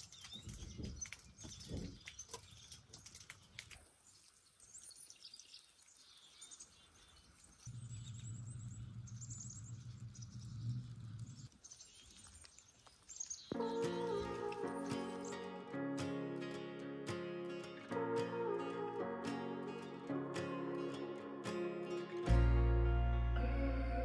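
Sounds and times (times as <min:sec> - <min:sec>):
songbirds chirping: 0:00.0 - 0:15.7.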